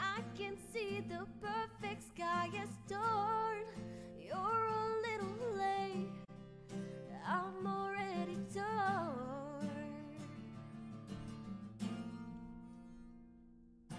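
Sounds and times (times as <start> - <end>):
woman singing: 0.0 - 6.4, 7.0 - 10.4
strummed acoustic guitar: 0.0 - 13.9.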